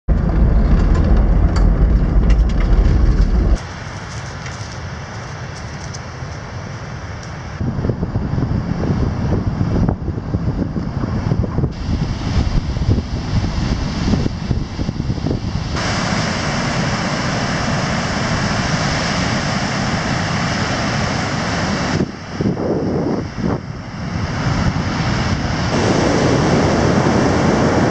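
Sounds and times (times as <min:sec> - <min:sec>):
wind buffeting microphone: 0:00.0 - 0:03.7, 0:07.6 - 0:27.9
gravel crackles: 0:00.0 - 0:06.5
vehicle road and engine rumble: 0:00.0 - 0:06.5
ocean surf breaking: 0:00.1 - 0:04.2, 0:11.7 - 0:22.4, 0:23.9 - 0:27.9
outdoor hiss: 0:15.8 - 0:19.1.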